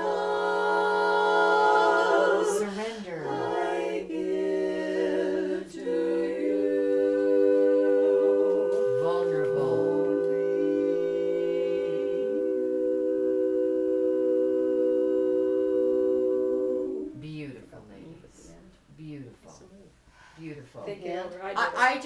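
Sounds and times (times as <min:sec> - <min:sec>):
women singing in harmony: 0:00.0 - 0:17.4.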